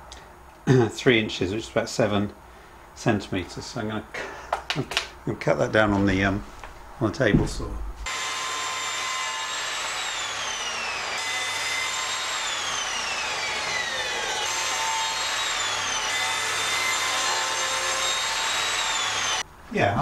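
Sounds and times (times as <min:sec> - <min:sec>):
table saw cutting wood: 0:08.0 - 0:19.4.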